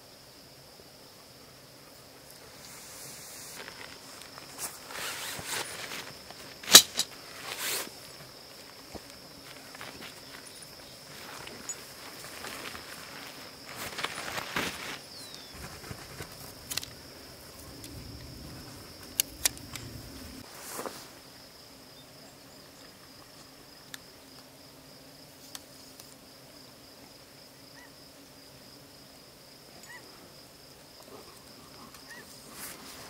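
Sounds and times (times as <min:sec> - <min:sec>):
insects trilling: 0:00.0 - 0:33.0
sharp clicks: 0:19.0 - 0:20.0.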